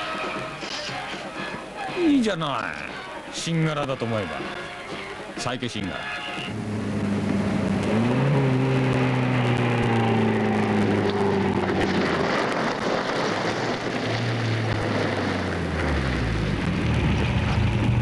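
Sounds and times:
car engine running: 0:06.5 - 0:18.0
rushing noise: 0:06.5 - 0:18.0.

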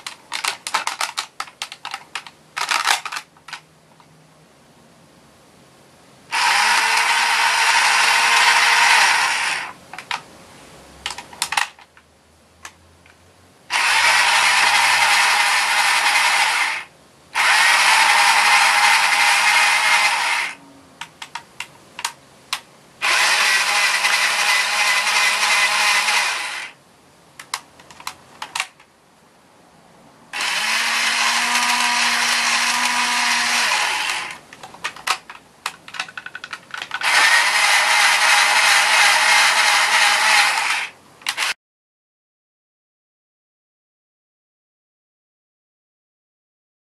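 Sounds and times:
toy motor whirring: 0:02.6 - 0:03.3, 0:06.3 - 0:09.8, 0:13.7 - 0:20.6, 0:23.0 - 0:26.8, 0:30.4 - 0:34.4, 0:36.0 - 0:41.6.

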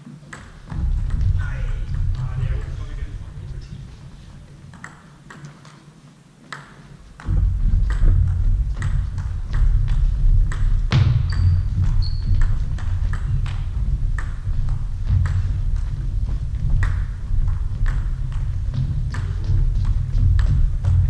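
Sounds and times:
heavy low thuds: 0:00.5 - 0:04.7, 0:07.2 - 0:21.0.

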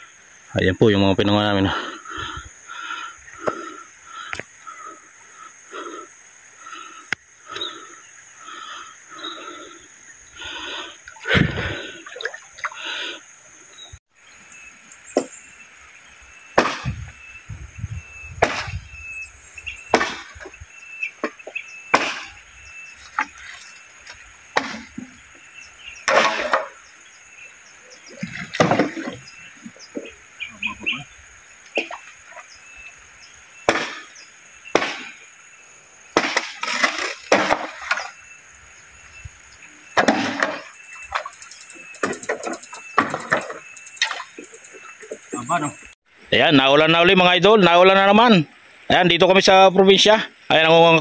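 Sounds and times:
pulsing insect chorus: 0:00.0 - 0:51.0
machete chopping bamboo: 0:16.6 - 0:16.9, 0:18.4 - 0:18.7, 0:19.9 - 0:20.5, 0:21.2 - 0:22.4, 0:26.1 - 0:26.8, 0:33.7 - 0:34.1, 0:34.7 - 0:35.2, 0:36.2 - 0:38.0.

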